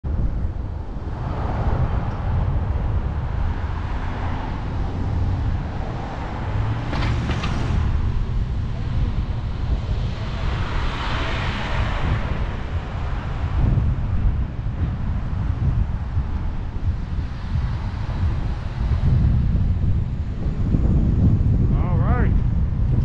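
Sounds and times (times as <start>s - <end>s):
city traffic: 0.0s - 23.0s
wind buffeting microphone: 0.0s - 23.0s
car passing close by: 2.9s - 13.9s.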